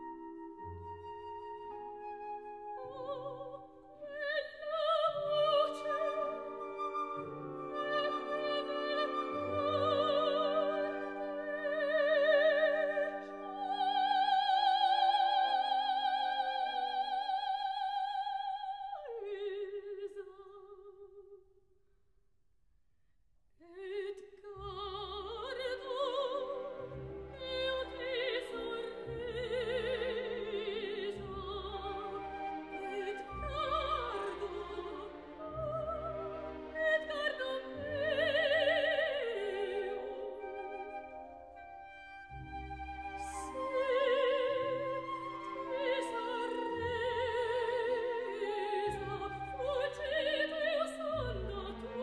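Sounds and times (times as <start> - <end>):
operatic soprano singing: 0.0 - 21.1, 23.6 - 52.0
orchestra playing: 5.4 - 14.1, 25.4 - 52.0.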